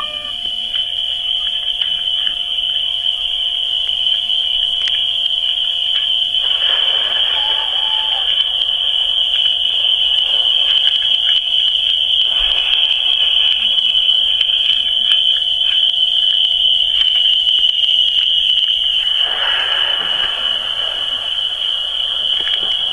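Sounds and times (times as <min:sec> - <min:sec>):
high-pitched chirring tone: 0:00.0 - 0:00.6, 0:06.4 - 0:10.6
rush of hiss: 0:06.4 - 0:09.2, 0:19.0 - 0:22.9.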